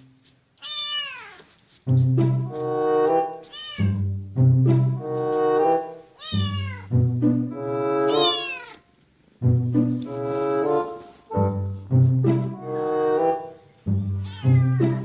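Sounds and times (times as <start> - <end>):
cat meowing: 0.6 - 1.5, 3.5 - 4.1, 6.2 - 6.9, 8.1 - 8.9, 14.1 - 15.0
background music held notes: 1.8 - 8.5, 9.2 - 15.0.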